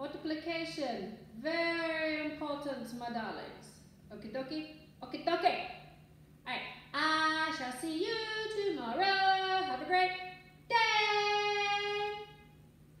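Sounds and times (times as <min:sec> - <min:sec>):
woman singing: 0:10.7 - 0:12.3.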